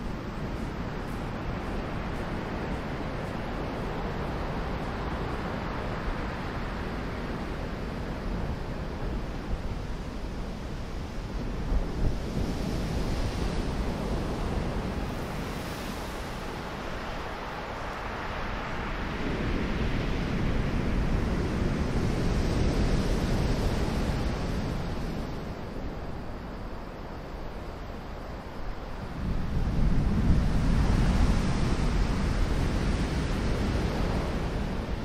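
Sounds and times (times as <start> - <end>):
wind rumble on microphone: 0.0 - 35.0.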